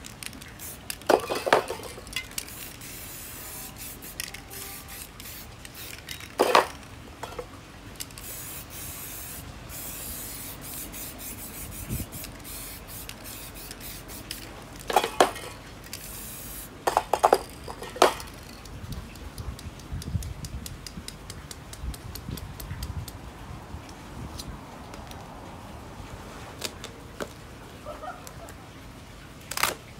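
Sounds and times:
spray paint can hissing: 0.0 - 6.9, 8.0 - 20.5
spray can crackling sputter: 0.0 - 7.4, 8.0 - 21.8
metallic clinks of cans: 0.6 - 8.8, 12.4 - 18.6.

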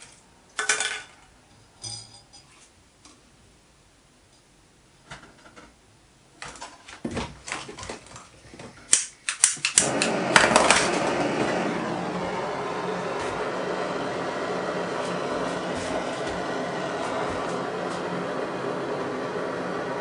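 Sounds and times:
blowtorch burning with hiss: 9.0 - 20.0.

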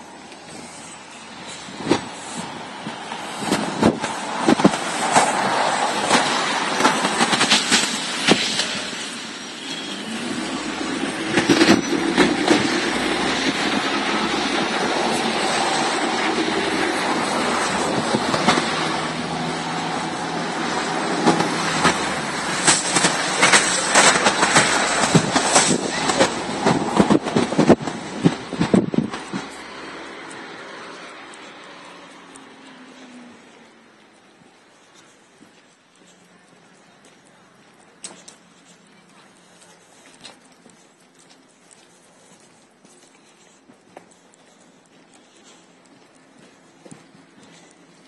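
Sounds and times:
low drone: 0.0 - 33.9
vehicle noise: 0.0 - 48.0.

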